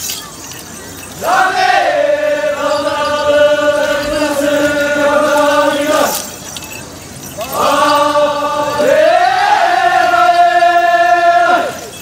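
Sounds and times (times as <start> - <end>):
group chanting in unison: 1.2 - 6.2, 7.5 - 11.9.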